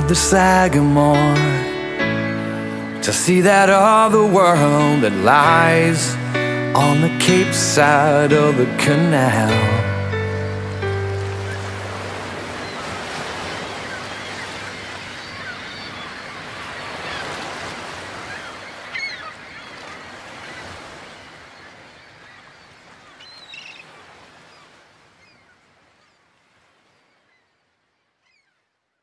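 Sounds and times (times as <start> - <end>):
ocean surf washing on shore: 0.0 - 26.9
short bird calls: 18.2 - 20.7, 22.0 - 26.2.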